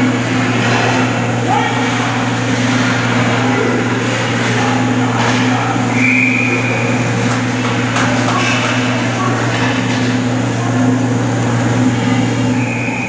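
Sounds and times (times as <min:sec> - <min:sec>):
referee's whistle blast: 0:05.9 - 0:06.8, 0:12.6 - 0:13.0.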